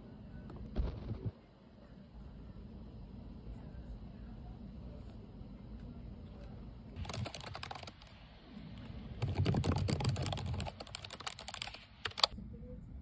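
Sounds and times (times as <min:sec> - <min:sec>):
fast typing on keyboard: 0:07.0 - 0:08.2, 0:09.1 - 0:12.4.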